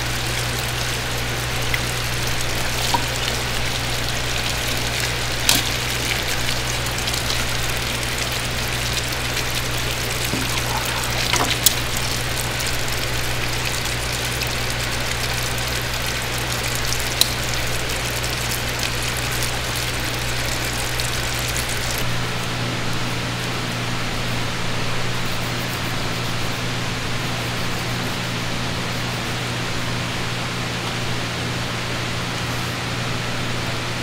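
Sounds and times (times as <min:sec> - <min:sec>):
running water rushing: 0:00.0 - 0:22.1
low machine hum: 0:00.0 - 0:25.1.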